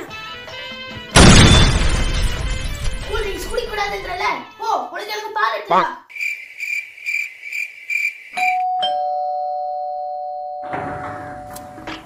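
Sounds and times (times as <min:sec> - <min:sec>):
doorbell high beeps: 0:08.4 - 0:11.4
two-note ding-dong chime: 0:08.6 - 0:11.1.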